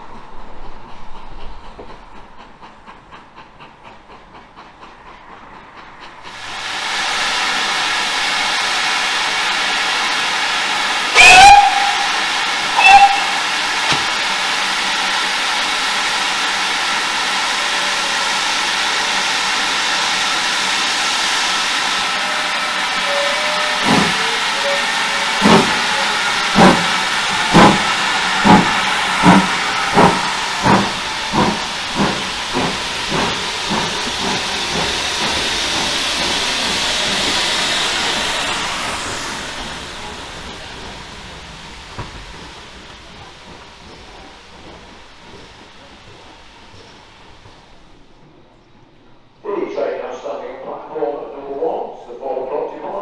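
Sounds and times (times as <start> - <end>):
loud hiss of steam: 6.1 - 48.7
locomotive exhaust beats: 8.0 - 48.7
steam whistle blasts: 11.1 - 14.1, 21.8 - 31.2.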